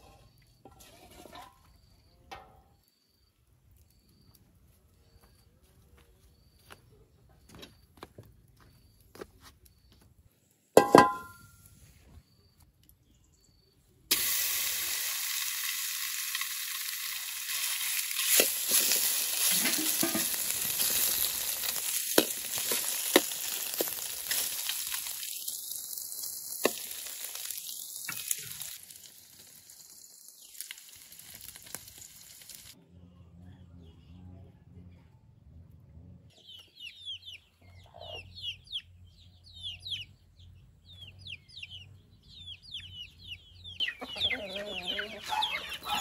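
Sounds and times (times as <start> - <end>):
metallic clank: 10.8 - 11.5
frying sizzle in a pan: 14.1 - 32.8.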